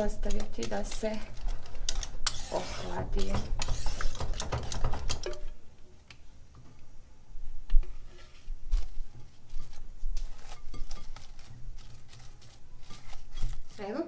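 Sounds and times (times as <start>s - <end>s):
utensil scraping metal pot: 0.0s - 4.5s, 9.5s - 14.0s
cling film crinkling: 8.6s - 14.0s.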